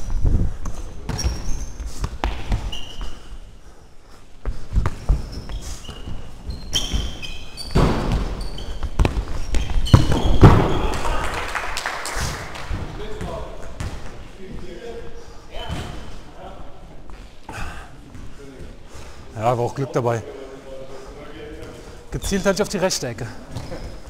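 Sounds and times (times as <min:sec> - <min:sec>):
sneakers squeaking: 0:00.0 - 0:03.5, 0:04.4 - 0:11.1, 0:12.8 - 0:14.7, 0:15.5 - 0:16.3, 0:21.6 - 0:24.0
ball kicked and bouncing: 0:06.5 - 0:10.8, 0:13.2 - 0:14.2.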